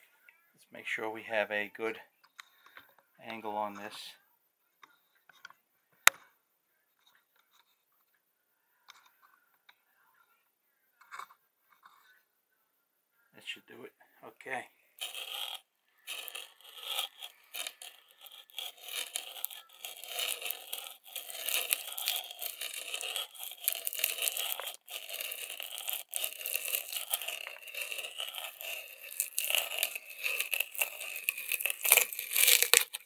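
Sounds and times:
drill bit scraping through wood: 0:15.0 - 0:33.0.

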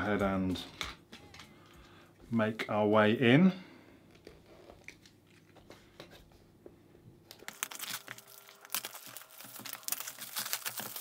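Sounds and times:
plastic wrap crinkling and tearing: 0:07.3 - 0:11.0.

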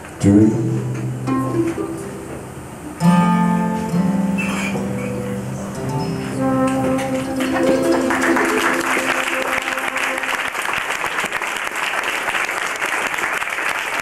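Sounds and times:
audience applauding: 0:07.2 - 0:14.0.

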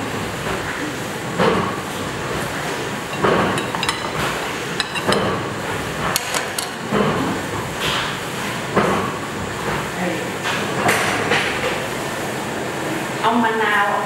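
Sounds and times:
metal utensils clinking on plates: 0:03.1 - 0:05.4.

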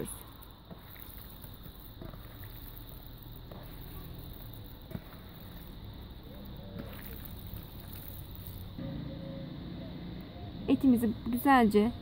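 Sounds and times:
wet squelching of meat kneaded: 0:00.0 - 0:08.7
low steady hum: 0:04.3 - 0:12.0.

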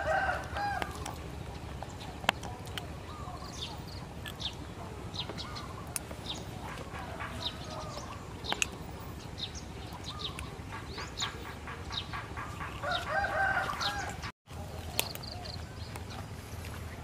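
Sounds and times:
small birds chirping: 0:00.0 - 0:17.0
chicken clucking: 0:06.6 - 0:08.3.

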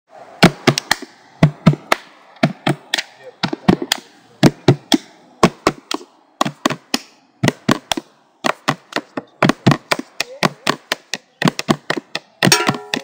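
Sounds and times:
drumming on plastic tubs: 0:07.4 - 0:13.0.

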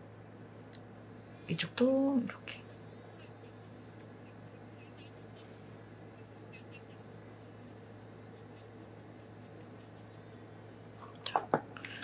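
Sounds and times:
scratchy brushing on fingernail: 0:01.7 - 0:10.7.

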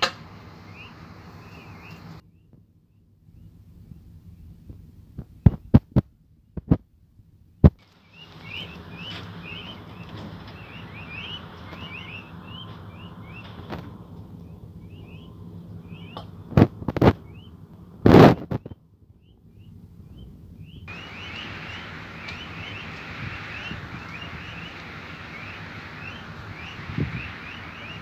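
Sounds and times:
low steady hum: 0:00.0 - 0:28.0
chicks peeping: 0:00.6 - 0:02.5, 0:07.8 - 0:28.0.

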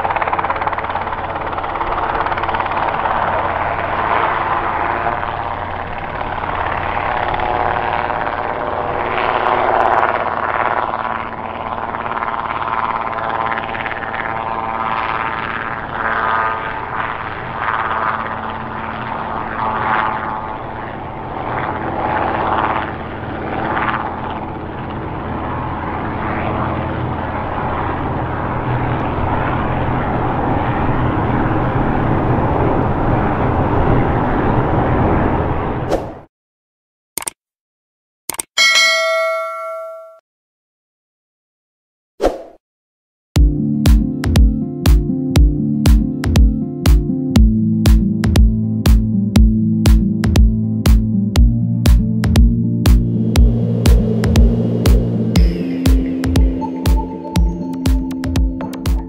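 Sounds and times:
piston engine drone: 0:00.0 - 0:09.0, 0:47.4 - 0:59.0
helicopter rotor beating: 0:00.0 - 0:35.7, 0:47.4 - 0:59.0.

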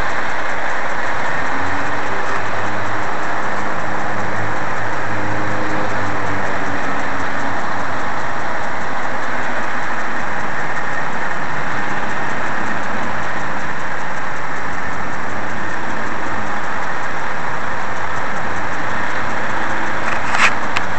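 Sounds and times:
car road and engine noise: 0:00.0 - 0:20.9.

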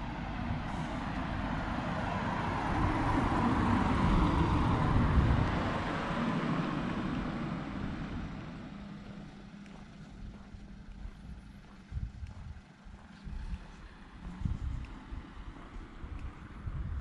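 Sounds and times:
car driving past: 0:00.0 - 0:10.5.

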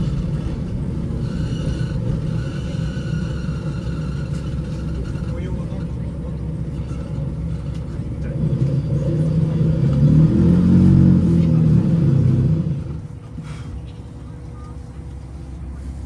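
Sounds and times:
railcar diesel engine hum: 0:00.0 - 0:16.0.

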